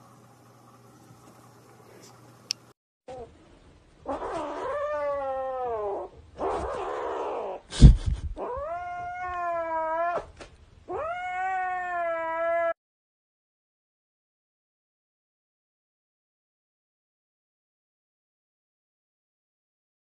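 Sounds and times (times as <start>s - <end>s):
kitten yowling: 4.1s - 7.6s, 8.4s - 10.3s, 10.9s - 12.8s.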